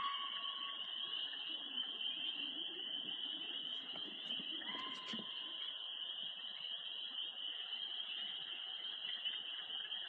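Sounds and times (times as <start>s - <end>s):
chorus of night creatures: 0.0s - 10.0s
distant fox scream: 4.5s - 5.6s.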